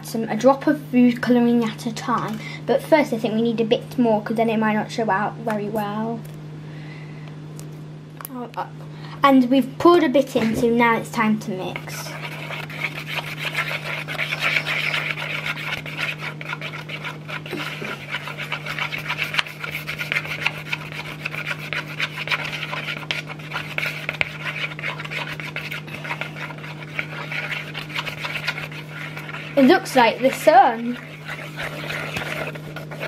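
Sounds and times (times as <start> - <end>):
stick scraping in a bowl: 10.5 - 33.0.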